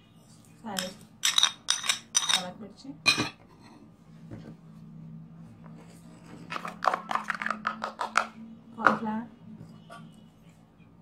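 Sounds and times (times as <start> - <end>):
metal spoon clinking on plastic bowl: 0.7 - 2.5.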